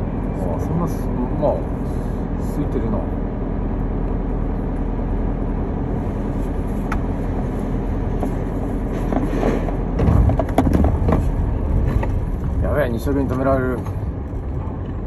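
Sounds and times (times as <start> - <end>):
vehicle engines rumbling: 0.0 - 15.0
sharp knocks: 9.9 - 12.2.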